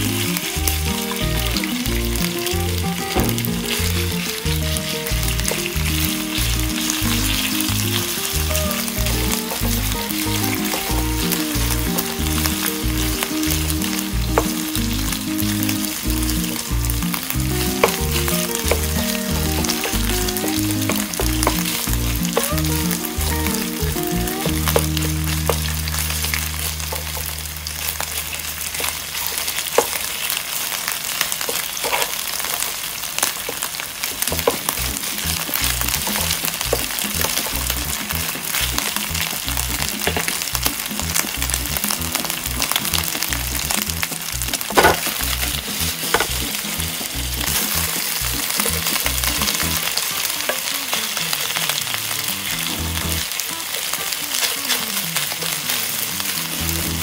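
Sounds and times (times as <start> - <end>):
background music with bass line: 0.0 - 29.3, 34.2 - 50.0, 52.0 - 53.3, 55.9 - 57.0
beef sizzling in oil: 0.0 - 57.0
wooden spatula clicking on pan: 34.2 - 50.7.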